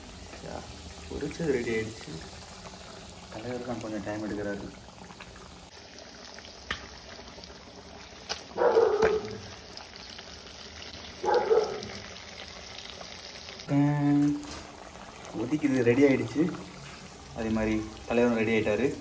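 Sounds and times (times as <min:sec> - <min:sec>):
gravy bubbling in a pot: 0:00.0 - 0:19.0
dog barking: 0:08.6 - 0:09.5, 0:11.2 - 0:12.0.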